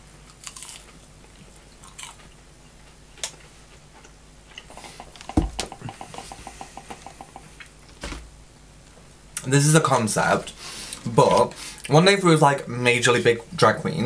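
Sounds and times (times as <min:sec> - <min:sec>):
quick evenly spaced ticks: 0:04.7 - 0:07.5
microphone handling thump: 0:05.2 - 0:05.9.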